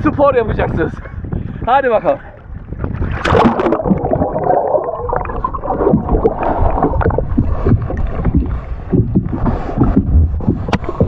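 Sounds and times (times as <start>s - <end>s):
muffled underwater rushing and gurgling: 2.2s - 11.0s
water splash: 2.8s - 8.4s
underwater knocks: 2.8s - 11.0s.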